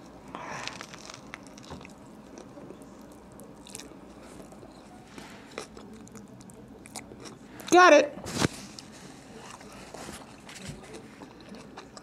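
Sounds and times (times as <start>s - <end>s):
biting into sandwich: 0.4s - 7.4s
chewing: 0.5s - 7.7s, 8.7s - 12.0s.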